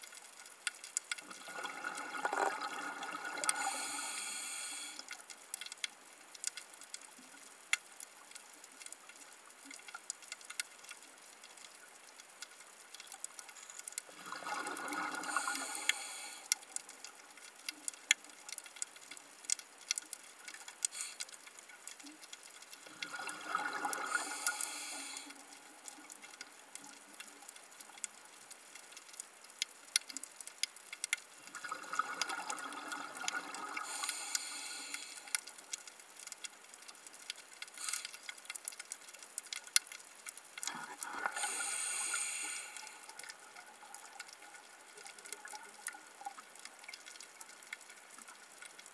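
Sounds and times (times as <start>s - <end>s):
underwater rush of bubbles: 1.3s - 4.1s, 14.1s - 15.9s, 22.9s - 24.8s.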